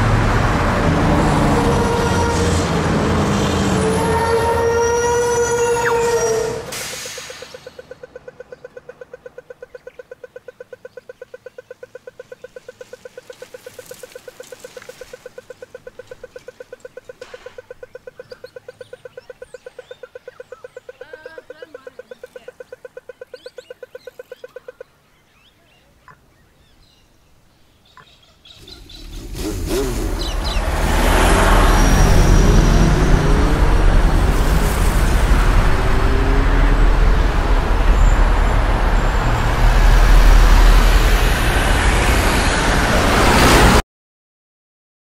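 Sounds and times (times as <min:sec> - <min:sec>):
car and truck engines: 0:00.0 - 0:20.8, 0:28.5 - 0:43.8
traffic rumble and tyre noise: 0:00.0 - 0:43.8
crossing signal ticking: 0:05.4 - 0:24.9.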